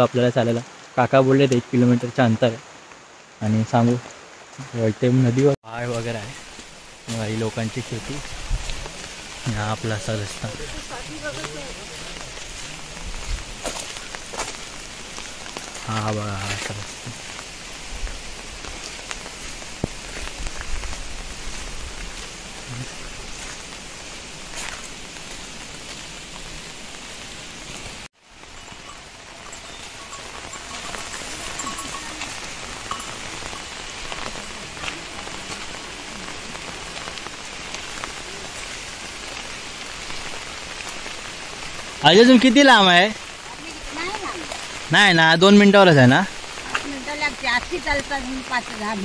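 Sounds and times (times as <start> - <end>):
light rain falling: 0.0 - 49.0.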